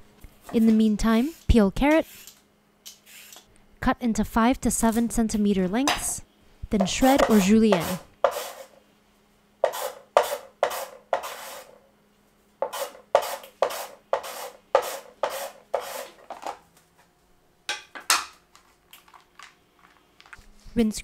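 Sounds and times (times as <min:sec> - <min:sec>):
carrot being shredded: 0:09.6 - 0:11.8, 0:12.6 - 0:16.4.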